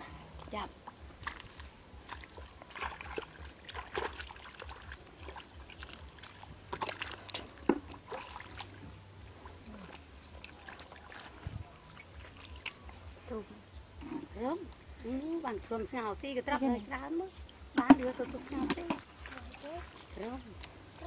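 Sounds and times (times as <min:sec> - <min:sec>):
small splashes in muddy water: 0:00.0 - 0:13.2, 0:17.4 - 0:21.0
squelching in shallow mud: 0:00.0 - 0:21.0.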